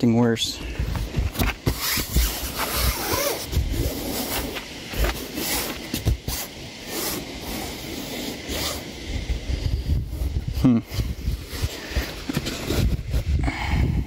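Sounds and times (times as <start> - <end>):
wind buffeting microphone: 8.4 - 14.0.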